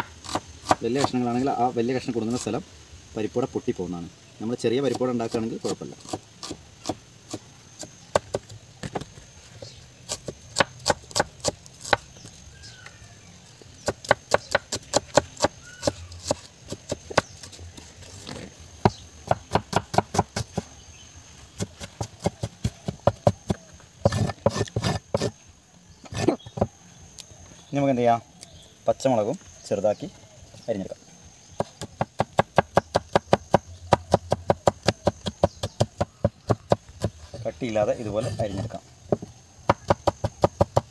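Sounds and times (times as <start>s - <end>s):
cleaver chopping on wooden board: 0.0s - 1.2s, 10.1s - 12.1s, 13.8s - 17.6s, 18.8s - 20.8s, 21.6s - 25.3s, 26.1s - 26.7s, 31.6s - 37.2s, 39.1s - 40.9s.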